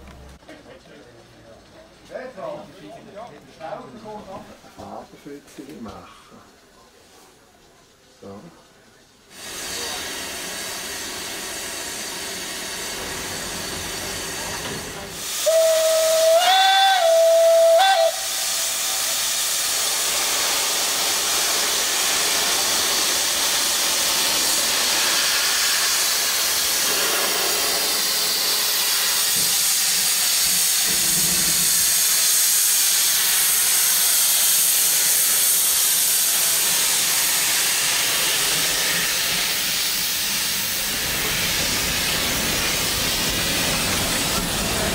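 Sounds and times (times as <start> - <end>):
steam hissing: 9.2 - 44.9
steam whistle blast: 15.3 - 19.1.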